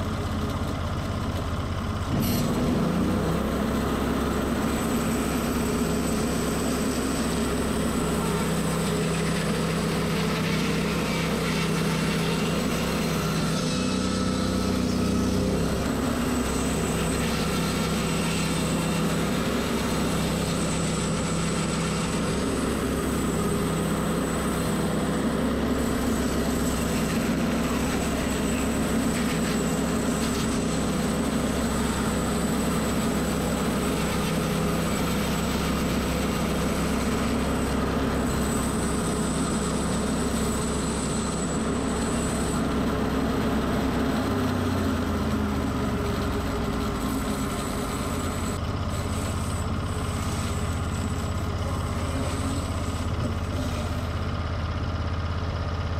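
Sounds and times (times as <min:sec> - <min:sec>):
sawmill engine running: 0:00.0 - 0:55.9
band saw cutting wood: 0:02.1 - 0:54.4.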